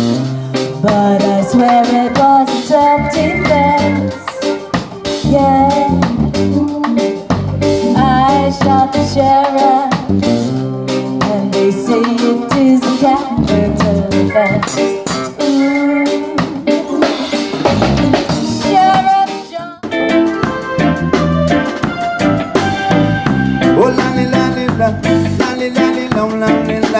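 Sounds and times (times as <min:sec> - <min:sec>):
reggae band playing: 0:00.0 - 0:26.9
woman singing: 0:00.8 - 0:07.2, 0:07.8 - 0:10.1, 0:11.0 - 0:17.4, 0:18.1 - 0:19.8.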